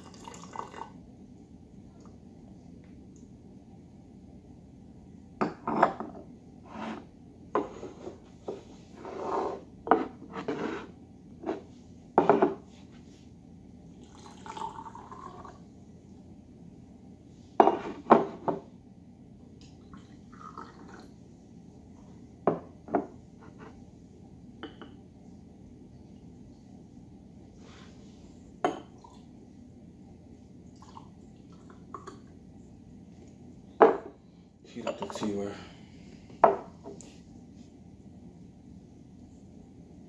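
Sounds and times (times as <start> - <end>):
liquid pouring: 0.0 - 1.0, 14.0 - 15.6, 19.8 - 21.1, 30.7 - 32.3.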